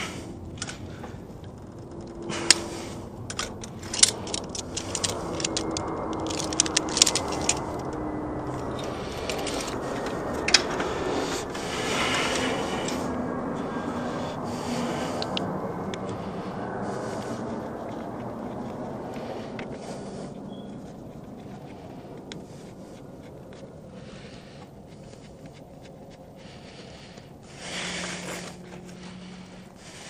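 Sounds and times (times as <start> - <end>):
cable rustling: 0.0 - 30.0
metal clicks and jingling of pliers: 3.2 - 10.6.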